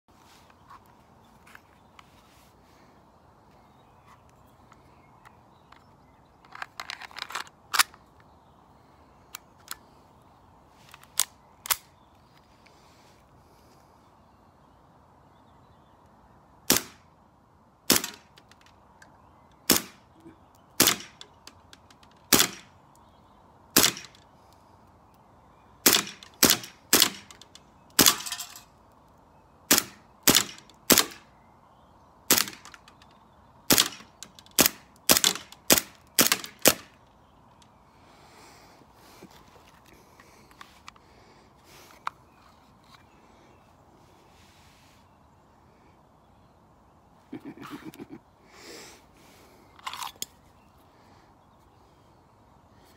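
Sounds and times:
air pistol shots: 0:16.7 - 0:17.0, 0:17.9 - 0:18.3, 0:19.6 - 0:20.0, 0:20.8 - 0:21.2, 0:22.3 - 0:22.7, 0:23.8 - 0:24.2, 0:25.8 - 0:27.4, 0:28.0 - 0:28.4, 0:29.7 - 0:31.3, 0:32.3 - 0:32.8, 0:33.7 - 0:37.0.

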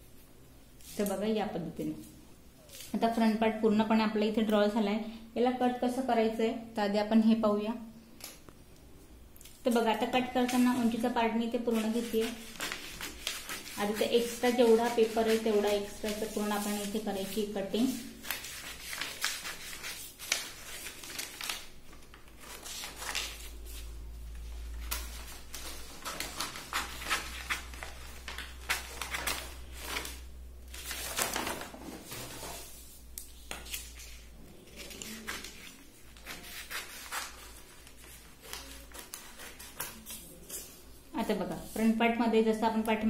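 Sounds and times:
paper rustling: 0:10.4 - 0:40.8
scissors cutting stiff paper: 0:11.7 - 0:17.4, 0:33.5 - 0:40.8.

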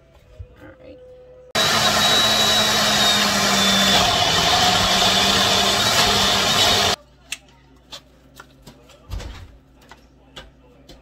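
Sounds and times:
blender motor running: 0:01.6 - 0:07.0.

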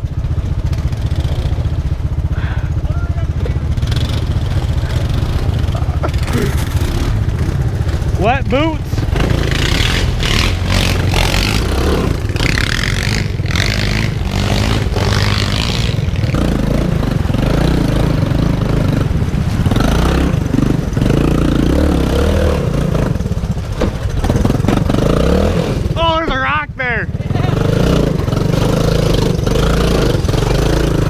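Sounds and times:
off-road vehicle engine revving: 0:00.0 - 0:31.0.

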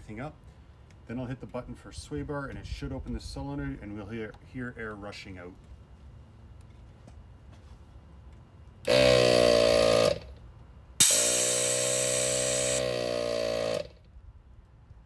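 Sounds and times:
air compressor running: 0:08.8 - 0:10.4, 0:11.0 - 0:14.0
compressor click: 0:11.0 - 0:12.8.

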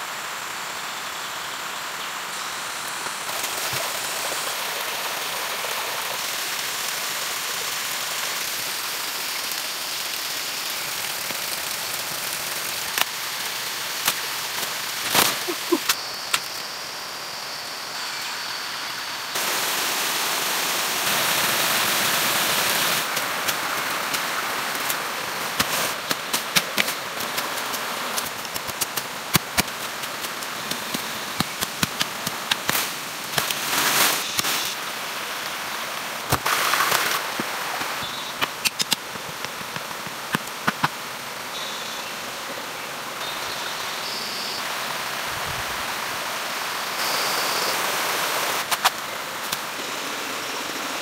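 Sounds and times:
plant stems snapping: 0:38.4 - 0:40.9.

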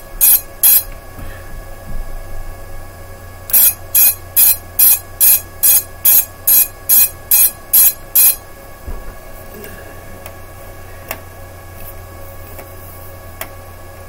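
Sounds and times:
high-pitched buzzer beeping: 0:00.2 - 0:00.9, 0:03.5 - 0:08.4.

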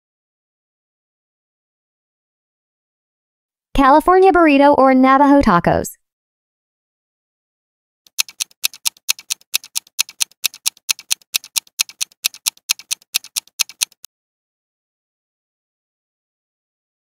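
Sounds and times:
countdown timer ticking: 0:08.1 - 0:14.1.

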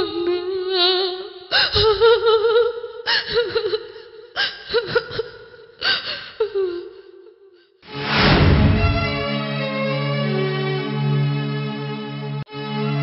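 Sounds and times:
woman sobbing and wailing: 0:00.0 - 0:07.6.

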